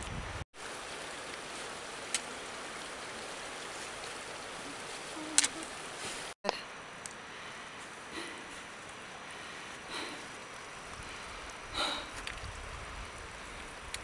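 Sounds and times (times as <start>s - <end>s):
steady outdoor hiss: 0.0s - 14.0s.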